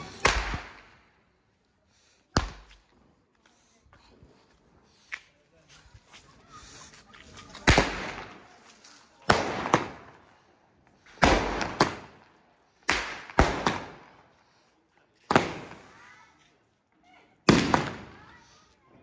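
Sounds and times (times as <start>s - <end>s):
firecrackers banging: 0.0s - 1.1s, 7.6s - 14.3s, 15.2s - 16.1s, 17.4s - 18.4s.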